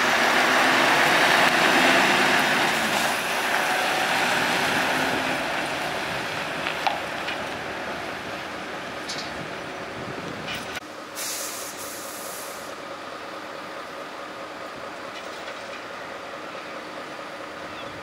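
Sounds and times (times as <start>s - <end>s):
truck diesel engine running: 0.0s - 11.0s, 11.8s - 18.0s
air hissing: 11.2s - 12.8s.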